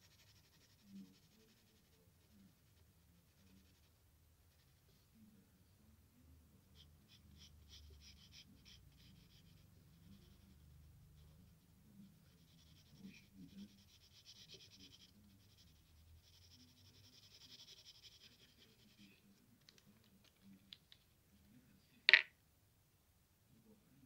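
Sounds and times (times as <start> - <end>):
pencil scratching on paper: 0.0 - 5.0, 6.7 - 19.2.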